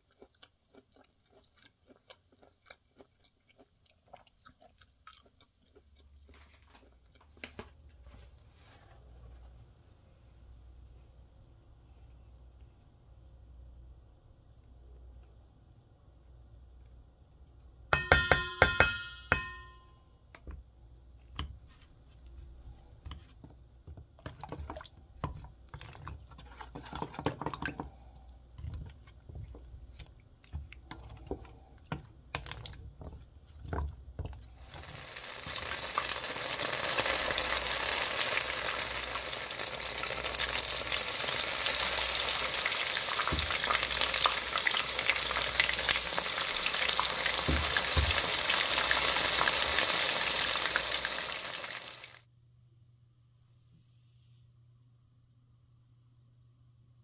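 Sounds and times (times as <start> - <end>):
taps on ringing steel bowl: 17.9 - 20.0
spoon mixing batter in bowl: 21.3 - 34.9
food sizzling in hot oil: 34.6 - 52.2.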